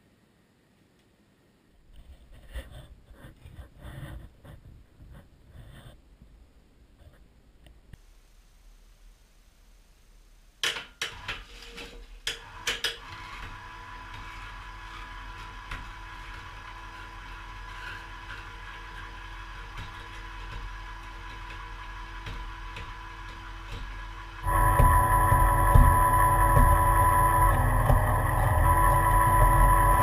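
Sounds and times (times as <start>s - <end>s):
electric hoist humming: 20.2s - 30.0s.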